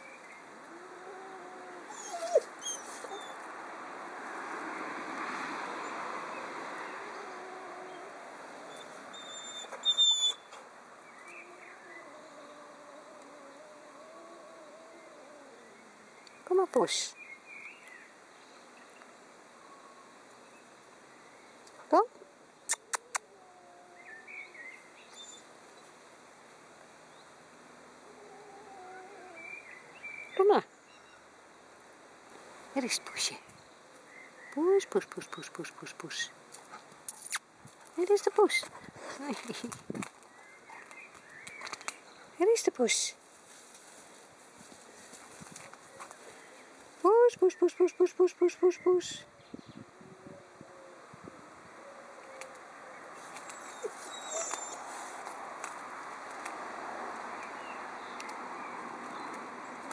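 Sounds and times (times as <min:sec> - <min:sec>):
dog crying: 0:00.7 - 0:03.4, 0:53.5 - 0:54.9
dog whining: 0:00.7 - 0:03.4, 0:07.1 - 0:10.4, 0:28.1 - 0:29.5, 0:53.4 - 0:54.9.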